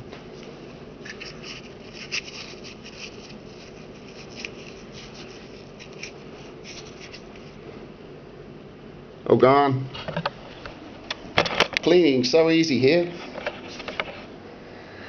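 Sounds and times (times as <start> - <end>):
steady background hiss: 0.0 - 15.0
hands rubbing small object: 1.0 - 7.6.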